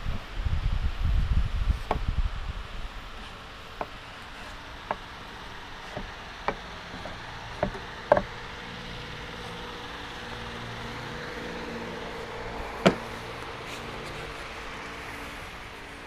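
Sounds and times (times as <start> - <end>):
steady low hum: 0.0 - 16.0
wooden block knocking on board: 5.9 - 8.3, 12.8 - 13.0.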